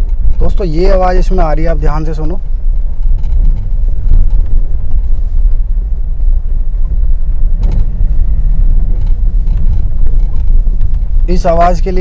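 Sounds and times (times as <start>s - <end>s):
car engine rumble inside cabin: 0.0s - 12.0s.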